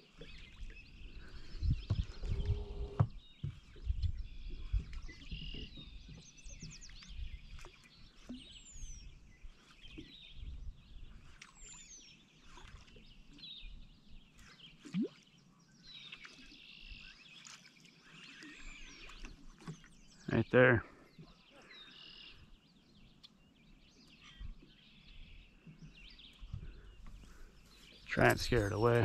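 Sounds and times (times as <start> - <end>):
birds chirping and calling: 0.1 - 12.0, 16.9 - 29.0
low knocks and bumps: 1.7 - 5.0.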